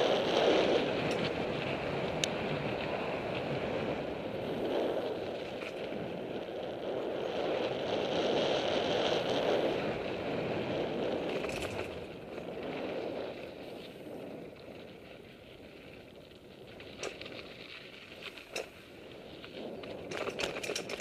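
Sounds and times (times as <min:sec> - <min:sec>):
bike tyres rolling on dirt: 0:00.0 - 0:21.0
wind rushing over microphone: 0:00.0 - 0:21.0
bike click or rattle: 0:00.5 - 0:02.4, 0:11.2 - 0:12.1, 0:16.8 - 0:21.0.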